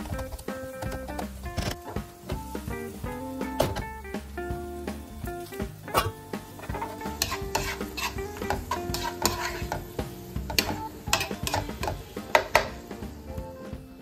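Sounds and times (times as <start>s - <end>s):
food sizzling: 0.0s - 14.0s
spatula scraping frying pan: 6.0s - 12.8s.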